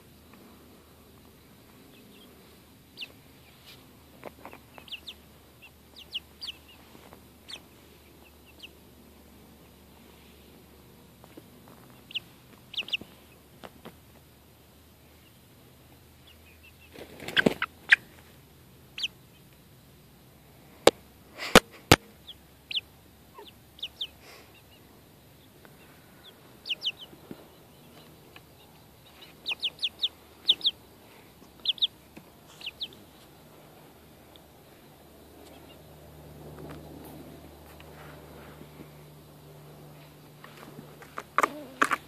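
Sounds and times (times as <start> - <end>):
chicks peeping: 0.0 - 20.1, 20.7 - 42.0
wing flapping: 16.9 - 18.2.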